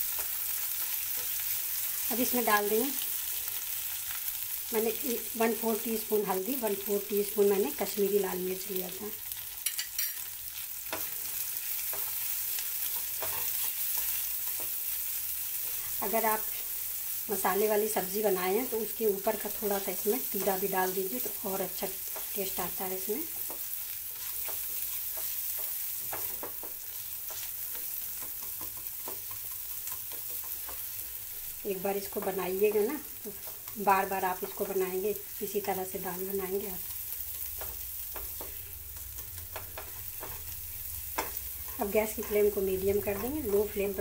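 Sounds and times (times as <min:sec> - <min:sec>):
vegetables sizzling in hot oil: 0:00.0 - 0:44.0
spatula scraping pan: 0:09.6 - 0:15.0
spatula stirring and scraping: 0:09.6 - 0:17.0, 0:23.3 - 0:34.8, 0:37.1 - 0:42.6.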